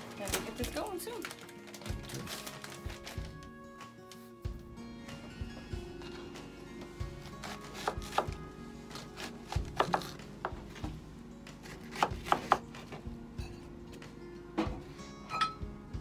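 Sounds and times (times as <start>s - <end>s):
knife slicing onion on cutting board: 7.2s - 10.6s, 11.6s - 12.9s.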